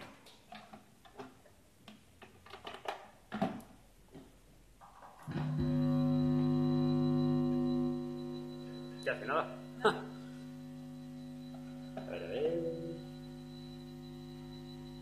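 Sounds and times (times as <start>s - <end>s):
loud guitar chord: 5.3s - 14.7s.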